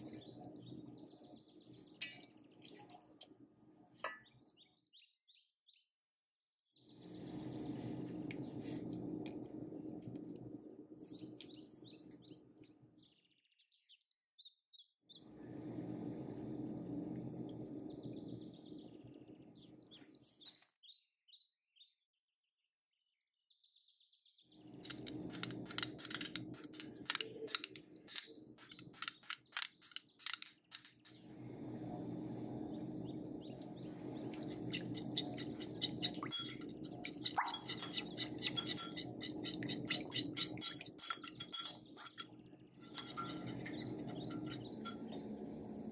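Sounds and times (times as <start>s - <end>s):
birds chirping: 0.0s - 3.2s, 24.6s - 45.9s
steady low hum: 0.0s - 4.3s, 7.0s - 12.8s, 15.2s - 20.4s, 24.6s - 45.9s
spoon scraping glass bowl: 24.8s - 31.2s, 34.3s - 45.2s.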